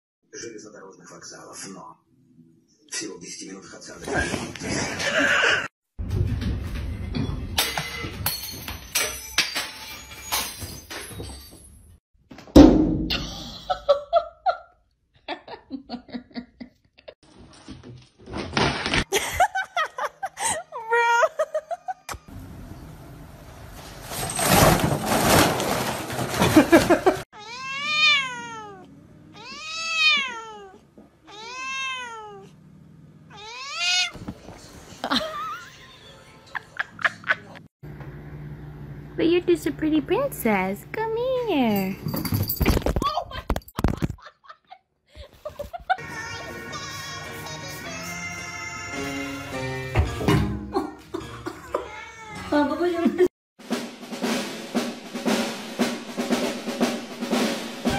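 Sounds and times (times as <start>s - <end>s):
loud heavy thump: 12.6s - 13.2s
cat meowing: 27.4s - 32.5s, 33.3s - 34.2s, 51.8s - 52.5s.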